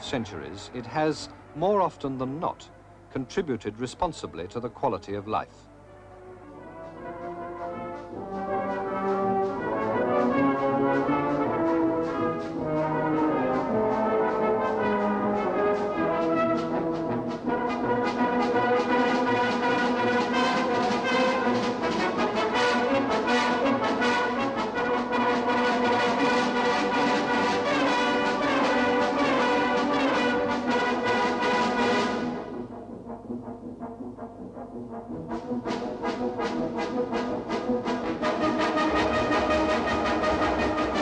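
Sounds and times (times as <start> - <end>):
brass band playing: 5.7 - 41.0.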